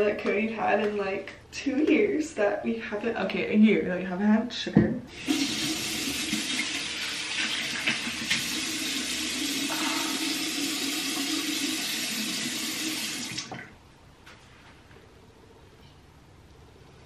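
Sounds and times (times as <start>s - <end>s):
sink tap running: 5.1s - 13.6s.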